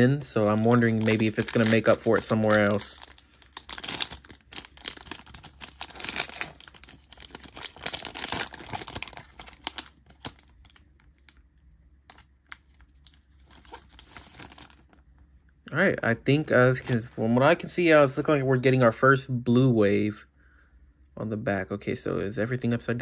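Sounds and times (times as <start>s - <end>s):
foil wrapper tearing and crinkling: 0.4s - 10.8s, 12.1s - 15.0s.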